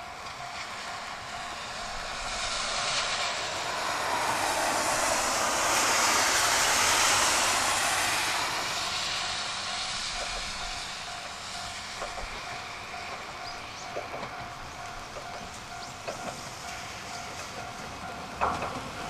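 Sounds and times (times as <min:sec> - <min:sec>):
diesel railcar passing: 0:00.0 - 0:19.0
train wheels on rails: 0:00.0 - 0:19.0.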